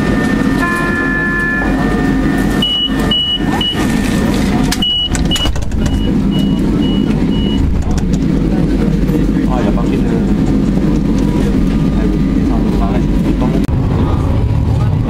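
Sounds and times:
crowd murmur: 0.0 - 15.0
tram hum: 0.0 - 15.0
short high warning beeps: 0.6 - 3.9.

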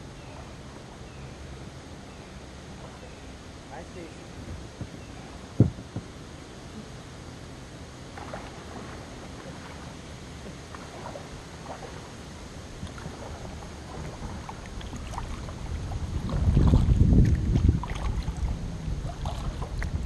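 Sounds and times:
low steady rumble: 0.0 - 20.0
paddle splashes and drips: 2.7 - 3.3, 8.0 - 20.0.

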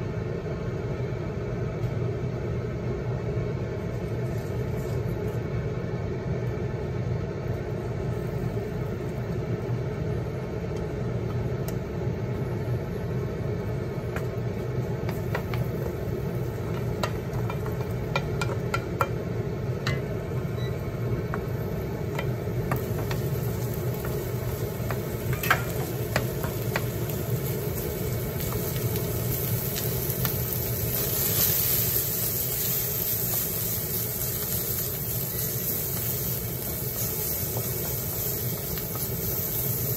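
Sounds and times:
leek frying in oil: 2.7 - 39.9
wooden spatula scraping a wok: 15.0 - 19.1, 30.7 - 39.9.

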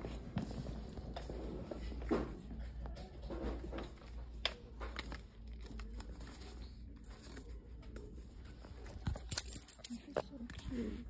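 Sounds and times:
plastic hangers clicking and rustling: 8.8 - 10.8.

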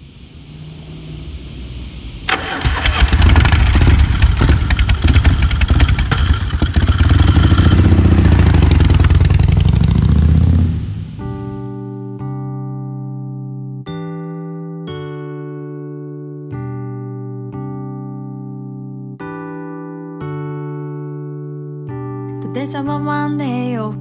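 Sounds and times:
soft hiss: 0.0 - 2.6
motorcycle engine rumbling: 0.0 - 11.2
exhaust popping: 2.2 - 11.2
piano music: 7.7 - 24.0.

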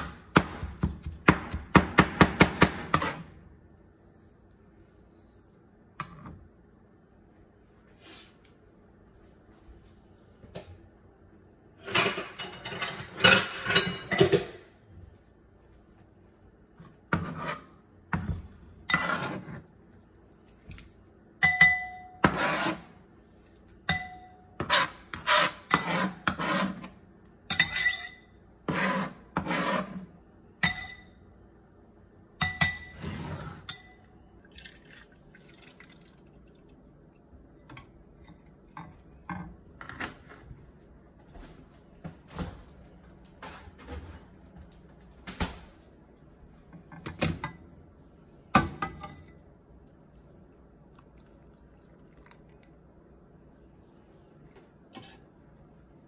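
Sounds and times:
knife scraping cutting board: 2.9 - 3.4, 17.1 - 17.8, 18.9 - 19.7, 22.2 - 23.0, 24.6 - 27.0, 28.7 - 30.1, 54.9 - 55.3
glass bowl clinking: 21.4 - 22.2, 23.9 - 24.5.

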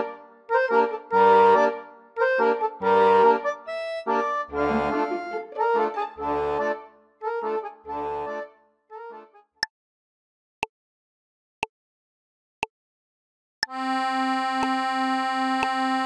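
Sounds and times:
accordion playing: 0.0 - 9.5, 13.6 - 16.0
metronome click: 14.6 - 14.8.

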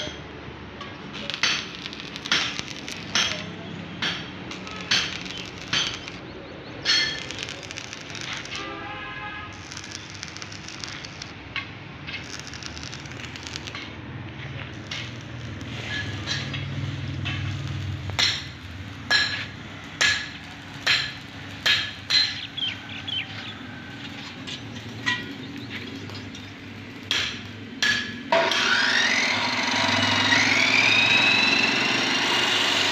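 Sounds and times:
metal clanks: 6.8 - 8.8, 9.6 - 23.5, 24.1 - 28.8
cut-off saw whining: 28.3 - 32.9.

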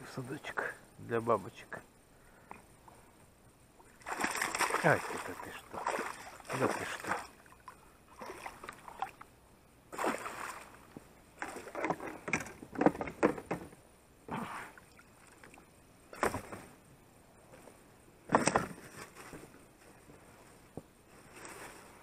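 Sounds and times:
water splashing against boat: 3.9 - 9.2, 9.9 - 10.8.

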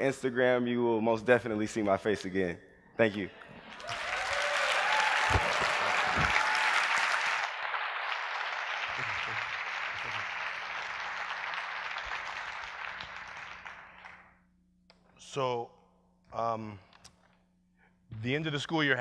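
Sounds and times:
audience applauding: 3.4 - 14.3.

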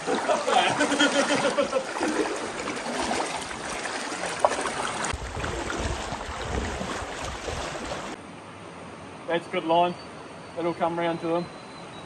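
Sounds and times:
water splashing around wading legs: 0.0 - 8.2
river running: 0.0 - 11.4.

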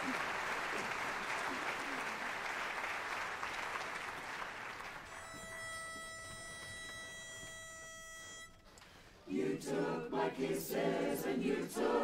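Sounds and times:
audience applause: 0.0 - 5.3
pitch pipe held note: 5.1 - 8.8.

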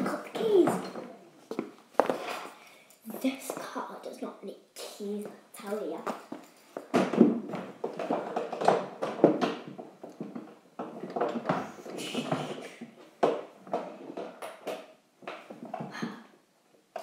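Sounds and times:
knocks and scuffling in toy car: 6.1 - 16.0.

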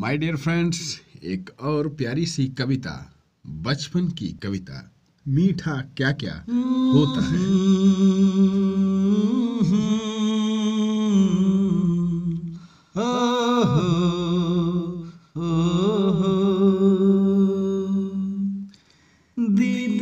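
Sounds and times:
man humming a melody: 6.5 - 18.8
short breaths: 12.5 - 13.0, 18.7 - 19.4.

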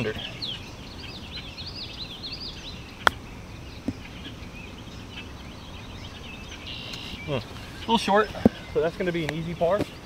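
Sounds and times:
birds chirping faintly: 0.0 - 10.0
golf club striking ball: 3.0 - 3.2.

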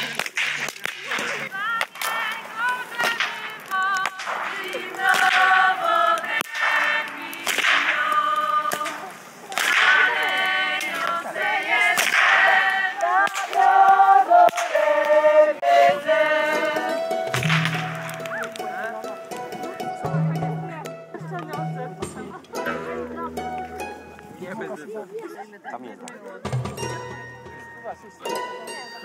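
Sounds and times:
whip cracks: 0.0 - 2.3, 3.0 - 5.6, 6.3 - 10.1, 11.8 - 13.7, 14.4 - 15.1, 17.3 - 18.6
group singing unaccompanied: 0.8 - 18.2.

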